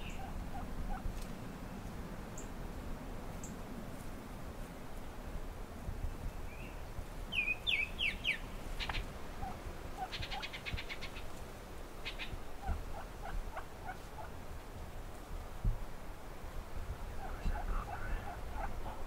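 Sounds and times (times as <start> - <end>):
soft low bird clucks: 0.0 - 2.6, 7.6 - 14.4, 16.9 - 19.0.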